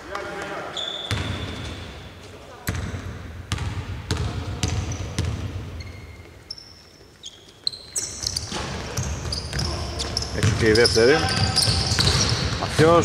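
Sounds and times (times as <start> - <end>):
sneaker squeaks on floor: 0.7 - 2.1, 4.6 - 12.8
basketball bouncing on floor: 2.7 - 5.7, 8.5 - 9.8, 10.4 - 10.7, 11.4 - 12.7.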